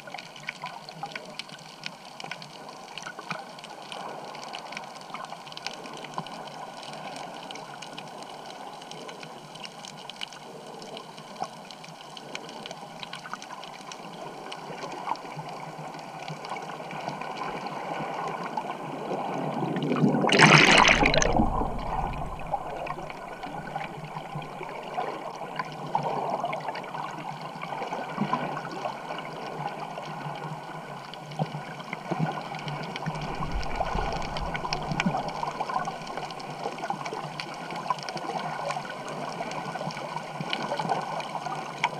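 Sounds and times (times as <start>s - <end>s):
muffled underwater water swirl: 0.0s - 41.9s
small clicks underwater: 0.0s - 41.9s
loud rush of bubbles: 19.4s - 26.8s, 32.6s - 37.3s.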